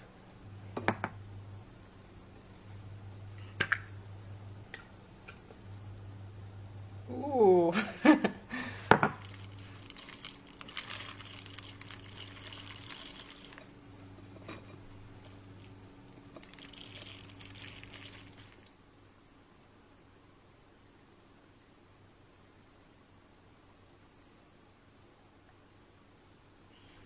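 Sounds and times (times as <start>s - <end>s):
sprinkles pouring onto bread: 9.2s - 13.7s, 16.4s - 18.7s.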